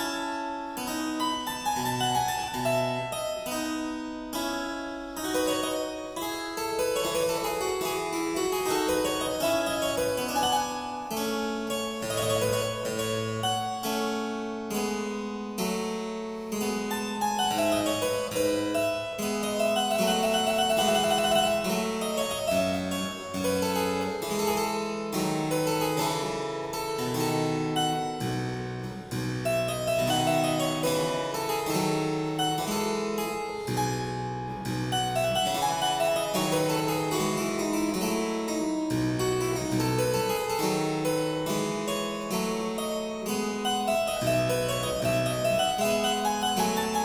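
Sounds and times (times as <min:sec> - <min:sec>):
instrumental music quick notes: 0:16.3 - 0:47.0.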